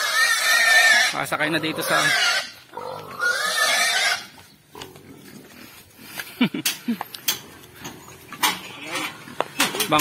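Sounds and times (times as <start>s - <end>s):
pig squealing: 0.0s - 4.4s
pig grunts: 0.0s - 5.4s.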